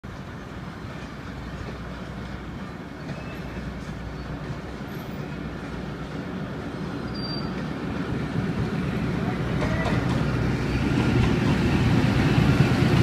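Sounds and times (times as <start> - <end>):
train approaching rumble: 0.0 - 13.0.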